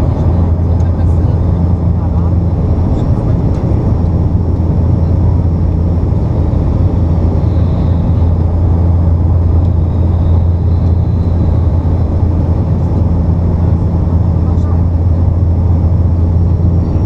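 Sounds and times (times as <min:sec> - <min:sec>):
propeller engine drone in cabin: 0:00.0 - 0:17.0.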